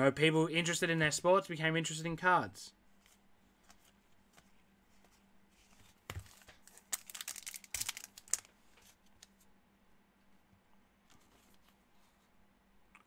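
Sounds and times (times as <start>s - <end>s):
wrapper tearing and crinkling: 6.2s - 8.5s.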